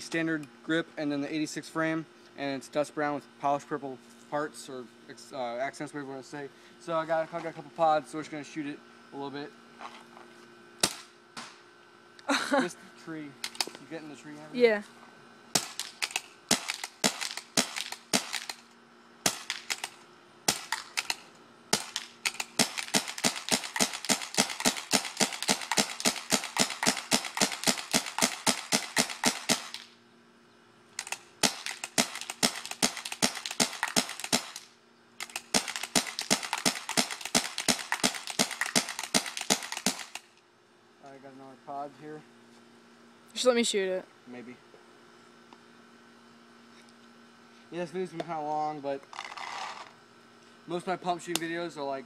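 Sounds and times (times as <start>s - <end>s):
paintball marker firing: 15.6s - 18.6s, 19.3s - 21.2s, 21.8s - 29.9s, 31.0s - 40.2s.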